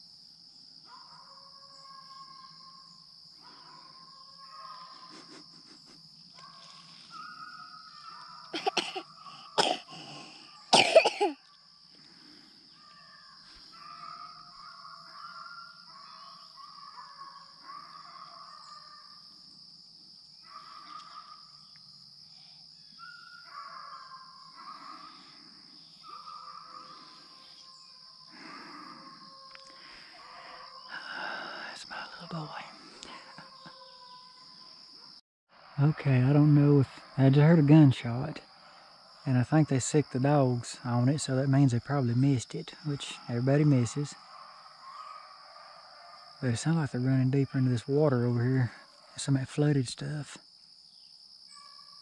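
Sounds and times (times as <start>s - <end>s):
high insect drone: 0.0s - 52.0s
distant dogs baying: 0.8s - 11.3s, 12.1s - 19.4s, 20.4s - 21.8s, 22.5s - 35.2s, 35.8s - 49.4s
person coughing: 8.6s - 11.4s.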